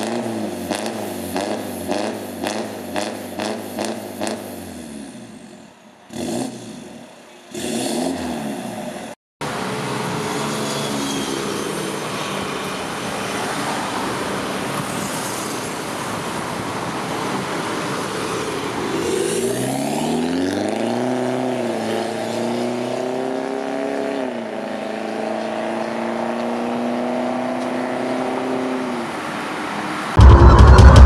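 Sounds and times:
traffic noise: 0:00.0 - 0:31.0
loud music: 0:30.2 - 0:31.0.

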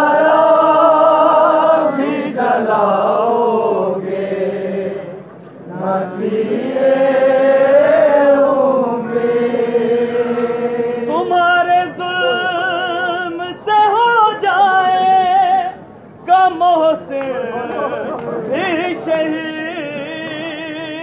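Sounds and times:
man singing with wavering notes: 0:09.0 - 0:21.0.

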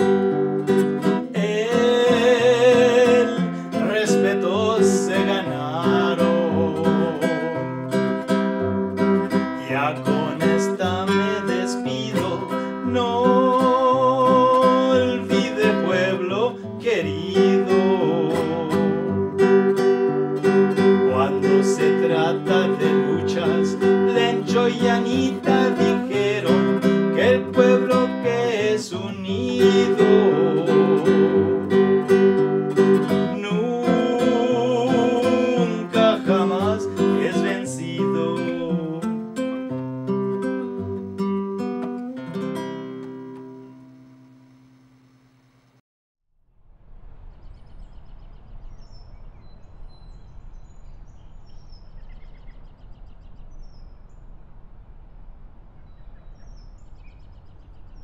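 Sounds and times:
classical guitar playing: 0:00.0 - 0:44.7.

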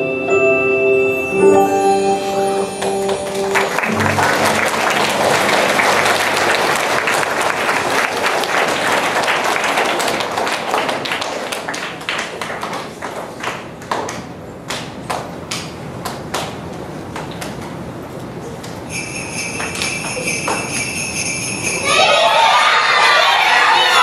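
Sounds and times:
song's held final chord: 0:00.0 - 0:07.2
audience applause: 0:02.7 - 0:14.3.

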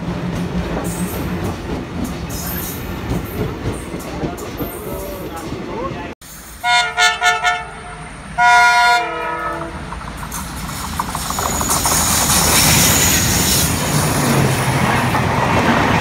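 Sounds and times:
train engine rumble: 0:00.0 - 0:16.0
train wheel noise: 0:00.0 - 0:16.0
locomotive horn blast: 0:06.6 - 0:09.8.

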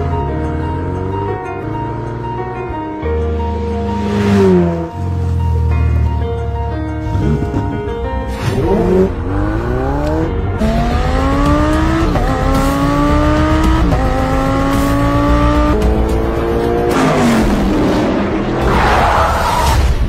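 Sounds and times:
background music: 0:00.0 - 0:20.0
car engine accelerating hard: 0:03.5 - 0:06.2, 0:07.0 - 0:18.7.

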